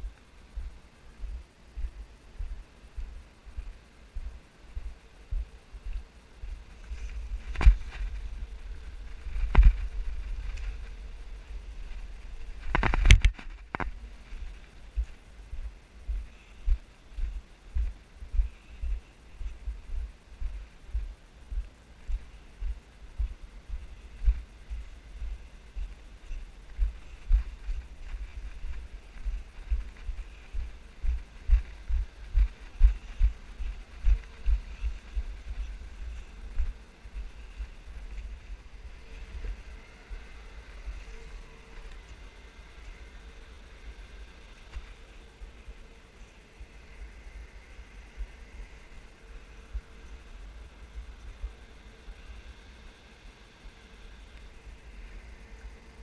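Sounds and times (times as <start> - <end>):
low rumble of wind: 0.0 - 56.0
muffled footsteps thudding: 7.2 - 8.3.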